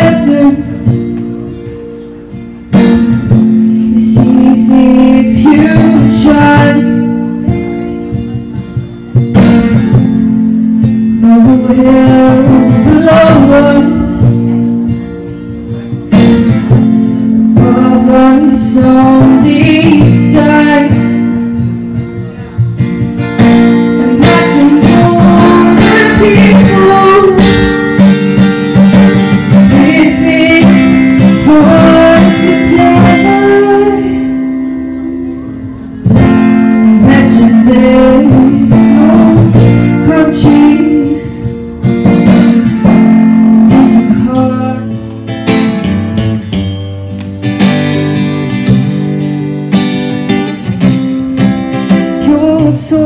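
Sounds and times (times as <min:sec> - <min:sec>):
woman singing: 0:00.0 - 0:01.0, 0:03.6 - 0:07.6, 0:10.8 - 0:14.7, 0:17.4 - 0:21.6, 0:23.8 - 0:28.0, 0:29.5 - 0:35.4, 0:36.1 - 0:41.7, 0:42.4 - 0:45.1, 0:51.9 - 0:53.0
acoustic guitar strumming: 0:00.0 - 0:53.0.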